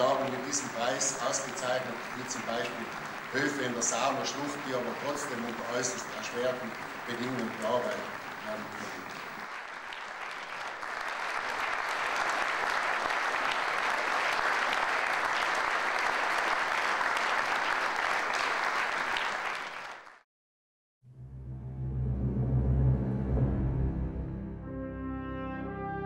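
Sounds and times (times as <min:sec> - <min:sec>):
audience applauding: 0:00.0 - 0:20.2
brass and drum music: 0:21.5 - 0:26.0.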